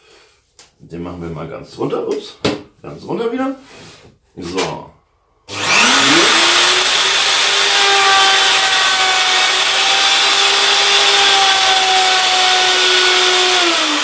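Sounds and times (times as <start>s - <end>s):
router whining cutting wood: 5.5s - 14.0s.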